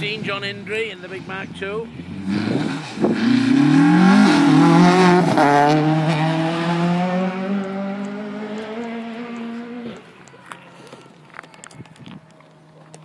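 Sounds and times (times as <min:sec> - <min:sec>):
rally car accelerating with upshifts: 0:02.1 - 0:10.1.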